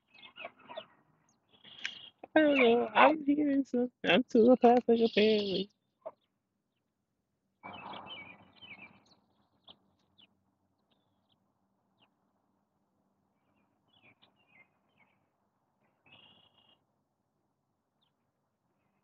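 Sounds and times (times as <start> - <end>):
faint high-pitched bird chirps: 0.0 - 2.9, 4.4 - 6.3, 7.6 - 10.3, 16.0 - 16.8.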